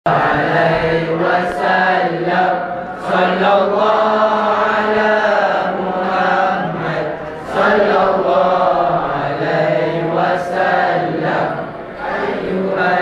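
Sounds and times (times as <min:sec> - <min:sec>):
boys singing together: 0:00.1 - 0:13.0.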